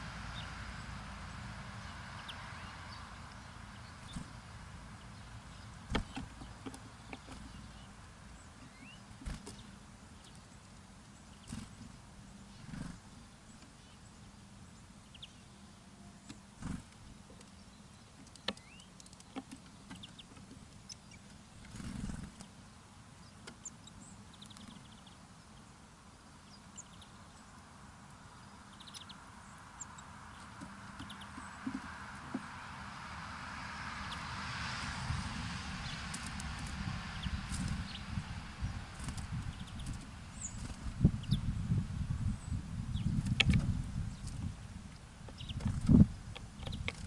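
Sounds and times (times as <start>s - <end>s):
small birds chirping: 0.0s - 47.0s
wings rustling flutter: 9.1s - 9.8s, 21.6s - 22.6s, 34.6s - 41.2s.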